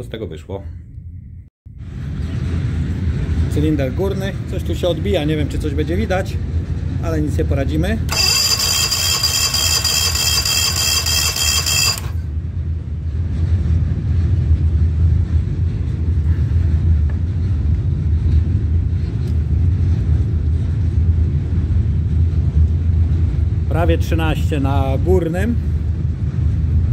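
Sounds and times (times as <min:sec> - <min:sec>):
steady low rumble: 0:00.8 - 0:08.1, 0:12.4 - 0:26.9
outboard engine cranking whine: 0:08.1 - 0:12.3.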